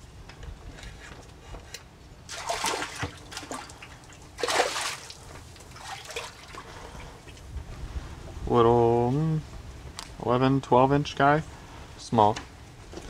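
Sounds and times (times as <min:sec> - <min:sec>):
fish splashing at water surface: 0:02.3 - 0:07.4.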